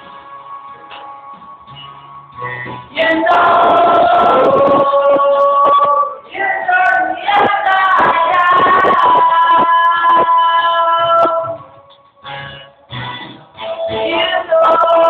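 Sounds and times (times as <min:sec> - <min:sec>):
backing music with a beat: 0:00.0 - 0:15.0
person singing into microphone: 0:02.9 - 0:12.0, 0:13.6 - 0:15.0.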